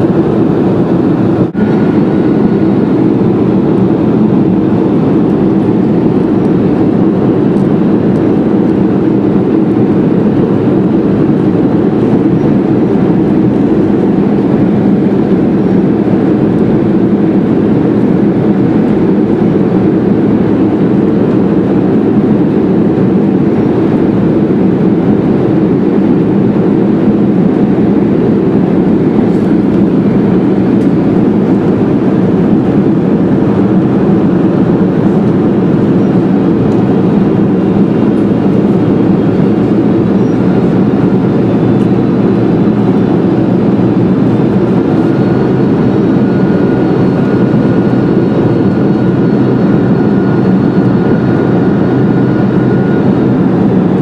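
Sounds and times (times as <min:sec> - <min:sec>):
airplane cabin rumble: 0:00.0 - 0:54.0
faint high whine: 0:27.6 - 0:54.0.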